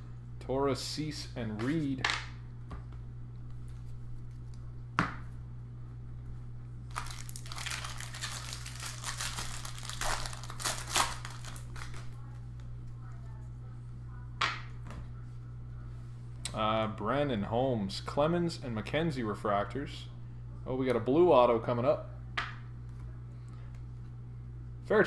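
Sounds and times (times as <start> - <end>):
wrapper tearing and crinkling: 6.9 - 12.1.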